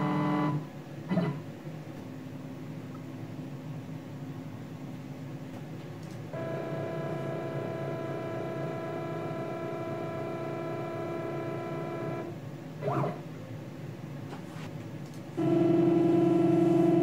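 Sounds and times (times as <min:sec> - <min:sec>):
machine hum: 0:00.0 - 0:17.0
pitched electrical whine: 0:05.5 - 0:13.4, 0:14.3 - 0:17.0.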